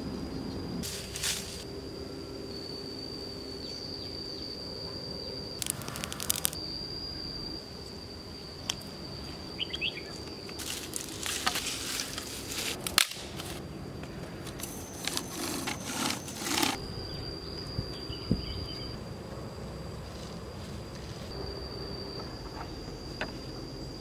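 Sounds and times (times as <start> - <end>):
high insect drone: 0.0 - 24.0
dry sticks being handled: 14.5 - 16.8.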